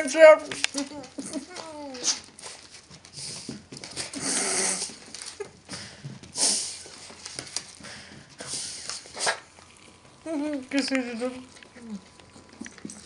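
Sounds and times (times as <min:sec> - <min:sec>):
dog sniffing and licking: 0:05.9 - 0:10.2.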